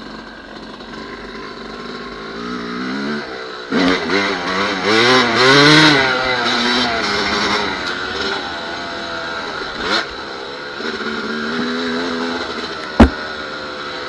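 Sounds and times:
dirt bike engine revving: 0.0s - 14.0s
sharp knock: 13.0s - 13.2s.

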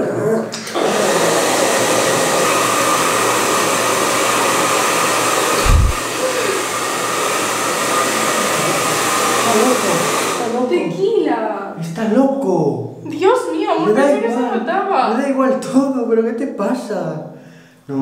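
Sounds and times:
hair dryer blowing: 0.7s - 10.6s
low thump: 5.6s - 6.0s.

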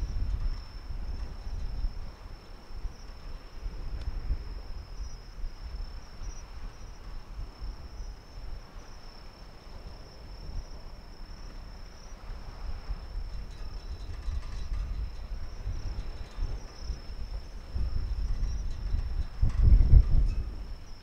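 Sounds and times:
crickets trilling: 0.0s - 21.0s.

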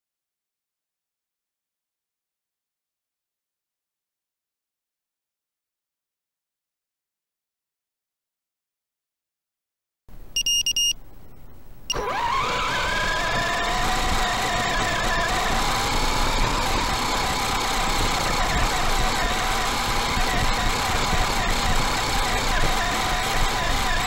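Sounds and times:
short electronic beep: 10.4s - 11.0s
electric motor whine: 11.9s - 24.0s.

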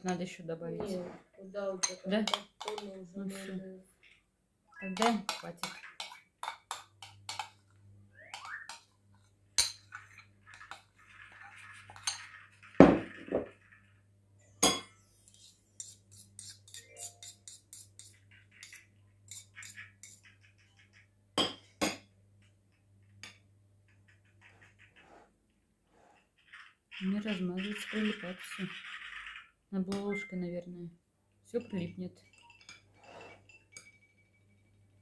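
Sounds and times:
metal spoon clinking on ceramic bowl: 1.8s - 2.9s, 14.6s - 20.2s, 32.2s - 34.3s
spoon scraping bowl: 4.9s - 14.0s, 15.1s - 21.1s, 24.2s - 29.5s, 32.3s - 34.0s.

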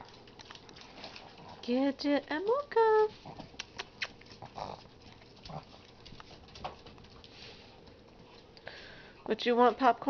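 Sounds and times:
dog claws clicking on wood floor: 0.0s - 1.8s, 3.4s - 8.6s.

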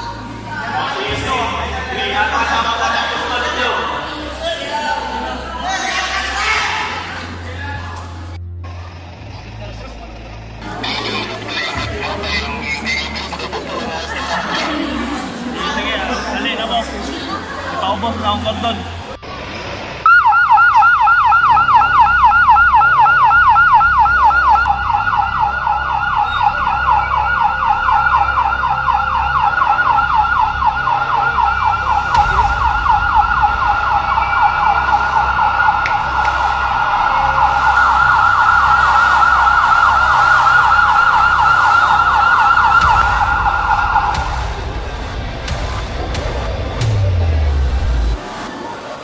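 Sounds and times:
electronic yelp siren: 20.0s - 45.6s
low rumble: 30.4s - 48.6s.

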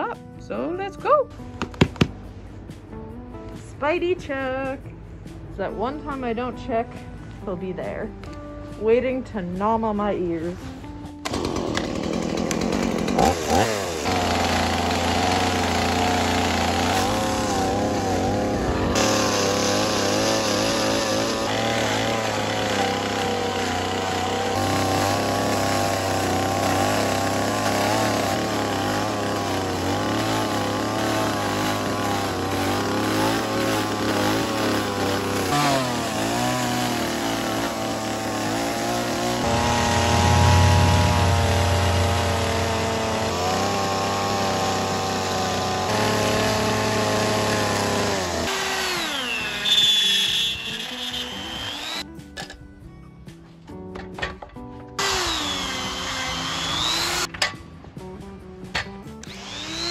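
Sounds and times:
chainsaw cutting wood: 1.5s - 2.2s, 11.1s - 52.1s, 54.9s - 57.5s, 58.9s - 59.9s.

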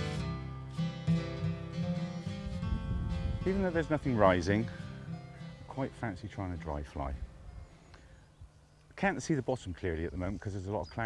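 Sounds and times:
acoustic guitar plucked notes: 0.0s - 7.9s.

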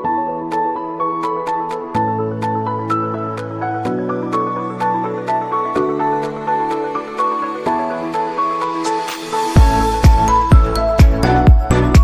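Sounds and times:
new-age background music: 0.0s - 12.0s.

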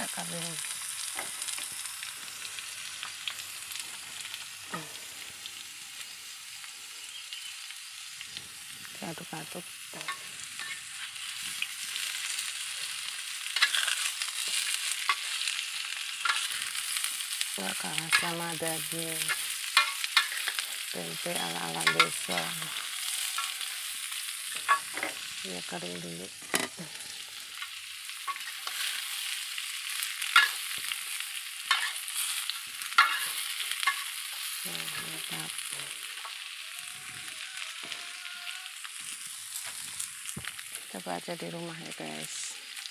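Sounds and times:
food sizzling in oil: 0.0s - 42.9s
metal spatula scraping wok: 10.0s - 12.0s, 13.5s - 15.4s, 31.7s - 34.5s
metal spatula scraping pan: 13.6s - 15.2s.

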